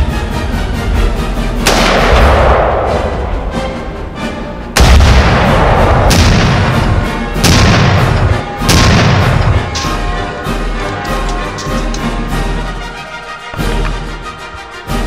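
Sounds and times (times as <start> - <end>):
background music: 0.0 - 15.0
rifle shot: 1.6 - 3.1, 4.8 - 9.8
explosive booms: 1.6 - 3.3, 4.8 - 9.7.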